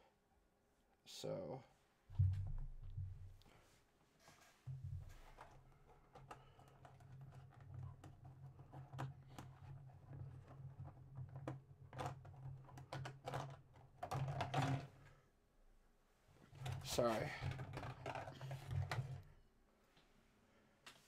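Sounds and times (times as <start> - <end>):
plastic clicks and rustles: 5.1 - 15.1, 16.5 - 19.3.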